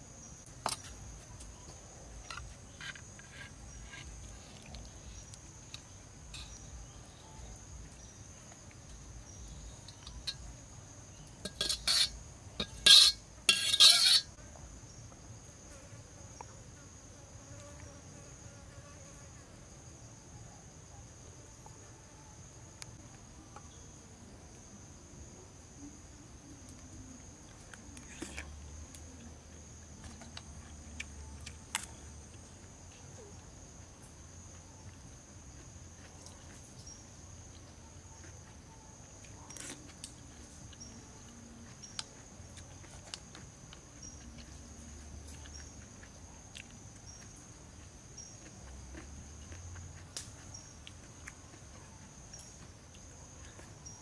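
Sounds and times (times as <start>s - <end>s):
high-pitched insect chorus: 0.0s - 15.7s.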